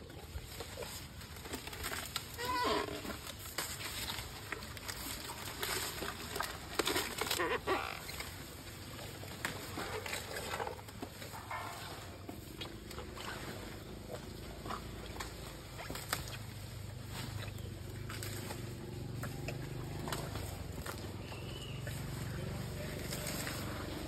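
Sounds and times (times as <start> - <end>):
elephants chewing and crunching: 0.0 - 24.0
leaves rustling: 0.0 - 24.0
stalks snapping: 15.1 - 16.5.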